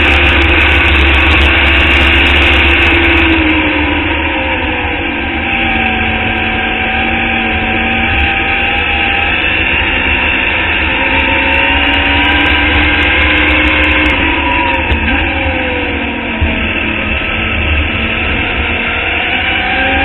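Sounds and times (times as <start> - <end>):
race car engine accelerating: 0.0 - 20.0.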